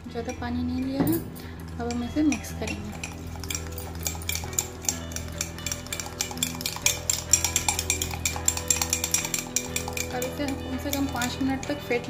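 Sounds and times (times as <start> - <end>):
metal spoon clinking glass: 0.2 - 12.0.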